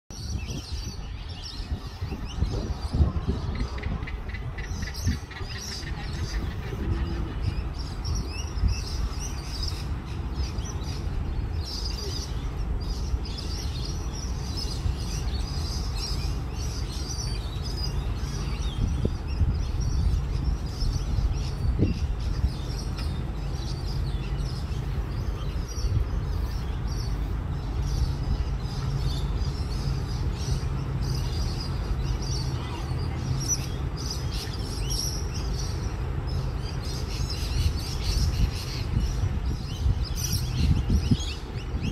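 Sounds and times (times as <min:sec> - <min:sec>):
birds chirping: 0:00.1 - 0:41.9
distant freight train rumbling: 0:01.9 - 0:33.9.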